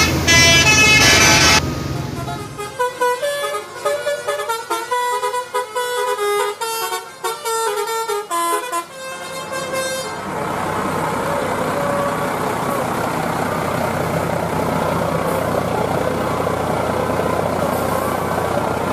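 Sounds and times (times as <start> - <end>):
horn playing quick tune: 0.0 - 6.2
multi-tone horn blast: 0.0 - 10.3, 11.3 - 12.9
bus engine idling: 0.0 - 18.9.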